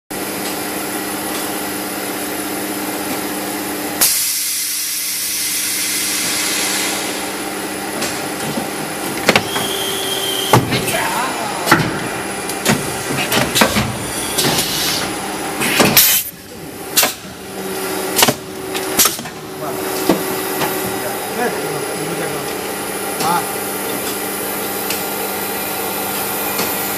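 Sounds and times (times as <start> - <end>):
machine humming: 5.0 - 26.9.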